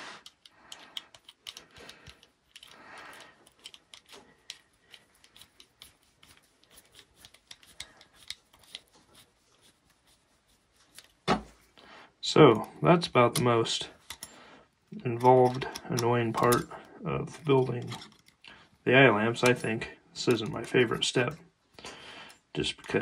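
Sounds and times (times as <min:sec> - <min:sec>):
small handling clicks: 0:00.2 - 0:09.1, 0:15.1 - 0:18.6
soft rubbing: 0:03.6 - 0:11.8.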